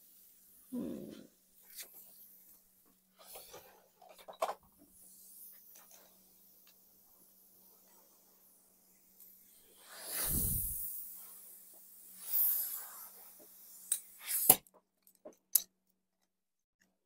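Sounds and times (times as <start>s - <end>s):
air blow gun hissing: 5.0s - 14.6s.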